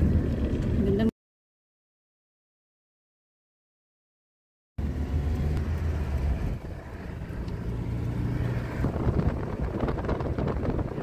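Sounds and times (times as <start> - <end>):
car engine and tyre noise: 0.0 - 1.1, 4.8 - 11.0
wind buffeting microphone: 8.3 - 11.0.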